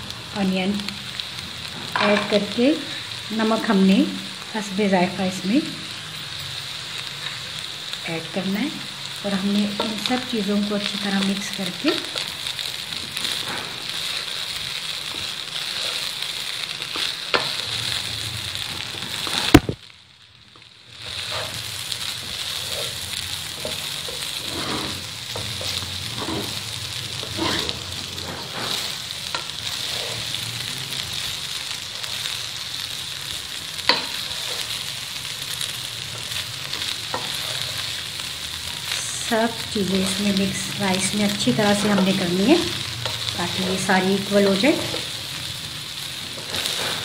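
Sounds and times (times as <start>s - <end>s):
rice sizzling in oil: 0.0s - 47.0s
wooden spoon stirring and scraping: 11.6s - 18.0s, 21.0s - 32.4s, 33.6s - 38.2s, 46.2s - 47.0s.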